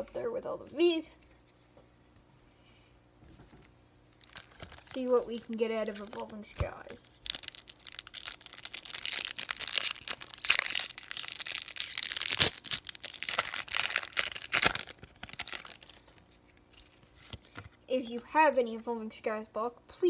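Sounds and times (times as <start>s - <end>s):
foil wrapper crinkling and tearing: 4.2s - 17.7s.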